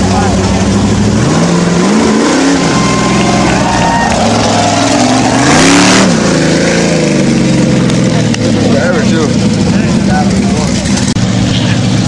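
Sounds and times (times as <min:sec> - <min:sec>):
truck engine revving: 0:00.0 - 0:12.0
mud flung rushing burst: 0:00.4 - 0:08.2.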